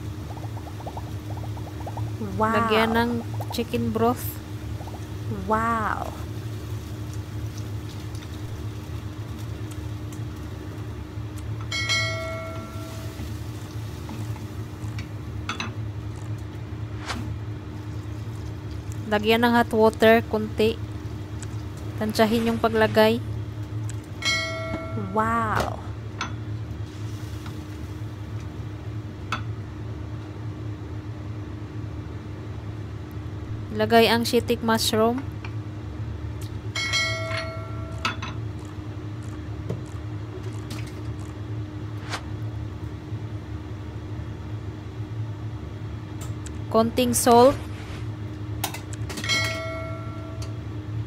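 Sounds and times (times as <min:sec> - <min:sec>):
low kitchen hum: 0:00.0 - 0:51.0
bell-like ding: 0:11.7 - 0:13.2, 0:24.2 - 0:25.2, 0:36.8 - 0:38.2, 0:49.2 - 0:50.6.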